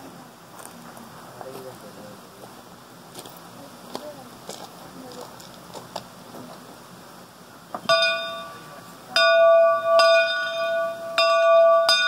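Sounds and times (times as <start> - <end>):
locomotive bell clanging: 7.8 - 12.0.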